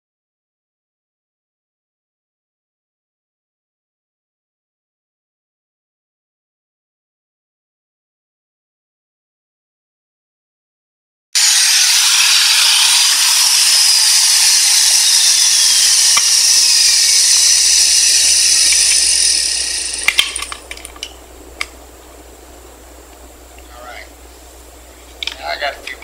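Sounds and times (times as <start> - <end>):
electric router cutting wood: 11.4 - 20.5.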